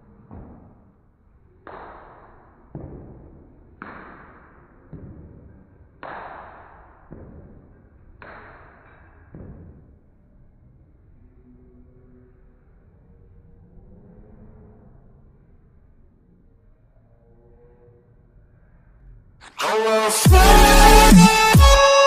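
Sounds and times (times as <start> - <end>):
slow beat music: 19.4 - 22.0.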